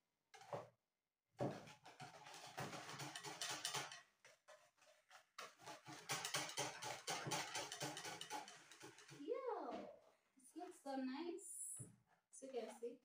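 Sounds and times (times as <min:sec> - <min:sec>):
whisk beating batter in bowl: 0:01.4 - 0:09.3.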